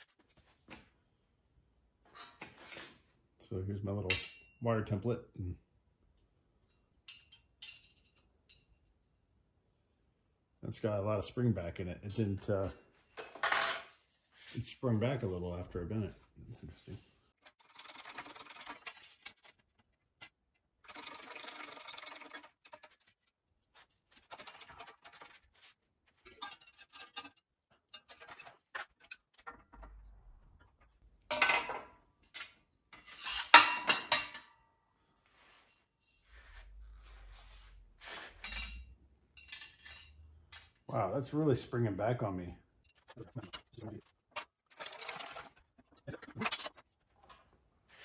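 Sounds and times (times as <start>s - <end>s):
metal parts clinking and scraping: 17.4s - 23.2s, 23.8s - 33.6s, 38.2s - 40.7s, 42.8s - 47.4s.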